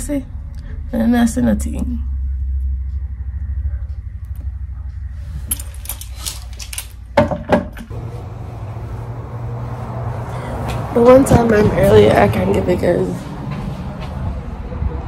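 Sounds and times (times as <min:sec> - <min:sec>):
low steady hum: 0:00.0 - 0:09.4
sharp knocks: 0:07.2 - 0:07.9.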